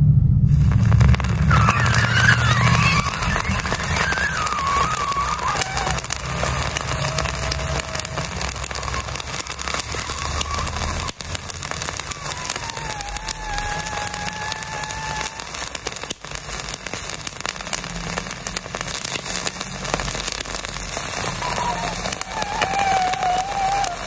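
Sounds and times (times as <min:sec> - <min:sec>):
meat sizzling and crackling: 0:00.5 - 0:24.0
faint thin whistle: 0:01.4 - 0:06.7, 0:21.3 - 0:24.0.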